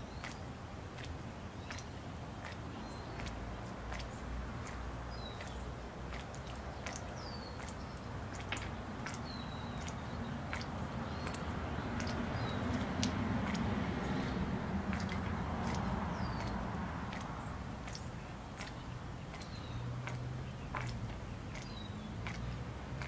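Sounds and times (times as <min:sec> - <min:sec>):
fountain splashing and dripping: 0:00.0 - 0:23.0.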